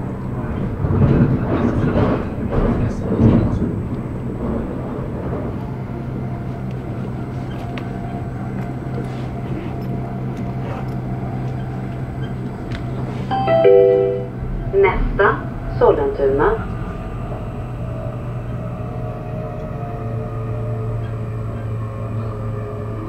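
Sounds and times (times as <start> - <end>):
train interior hum: 0.0 - 23.0
multi-tone chime: 13.3 - 14.3.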